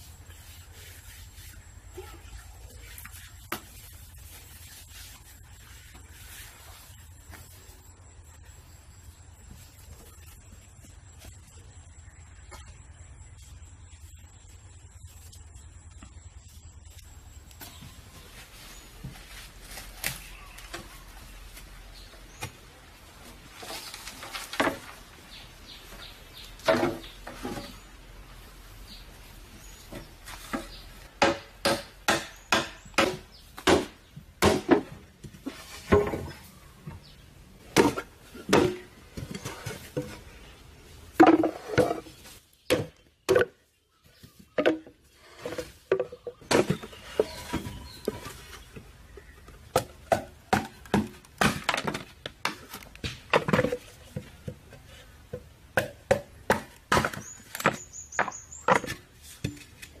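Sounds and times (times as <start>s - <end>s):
blade chopping wood: 31.2s - 34.9s, 55.8s - 59.0s.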